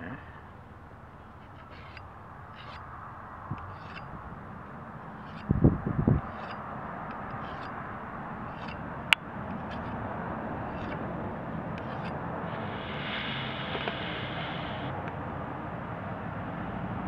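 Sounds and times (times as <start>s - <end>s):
steady background noise: 0.0s - 17.0s
sharpener scraping steel edge: 1.2s - 2.9s, 3.5s - 14.9s.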